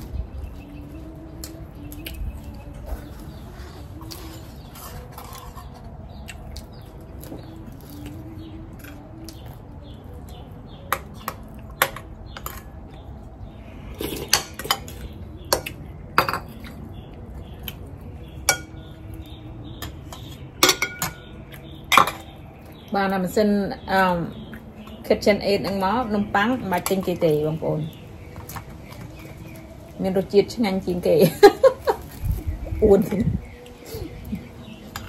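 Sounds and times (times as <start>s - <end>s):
dishes and utensils clinking: 14.0s - 16.7s, 18.5s - 18.8s, 19.8s - 21.3s, 21.9s - 22.4s.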